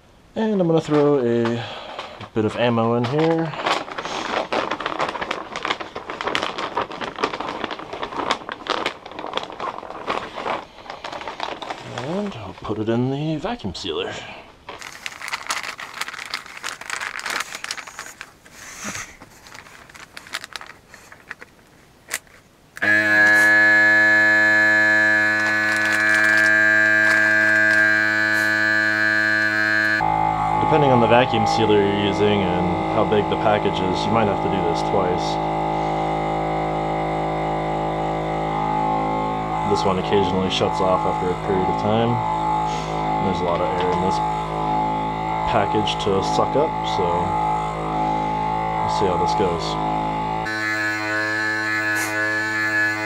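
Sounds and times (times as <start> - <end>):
plastic bag crinkling: 3.0 - 12.7, 14.6 - 30.0, 39.4 - 53.0
vacuum sealer pump buzzing hum: 22.8 - 53.0.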